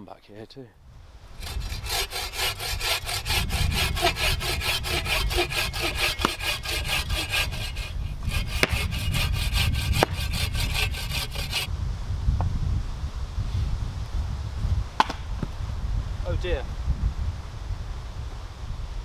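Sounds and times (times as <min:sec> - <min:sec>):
bow saw cutting log: 0:01.4 - 0:11.7.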